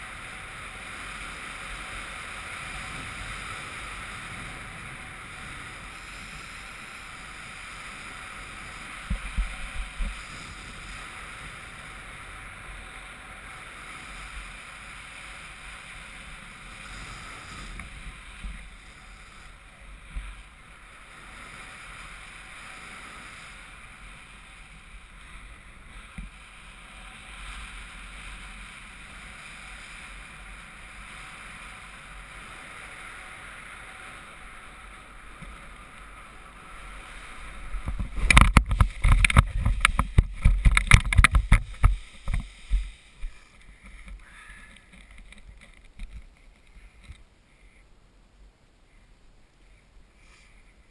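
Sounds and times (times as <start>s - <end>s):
wind buffets on microphone: 0.0s - 12.7s, 36.8s - 44.2s.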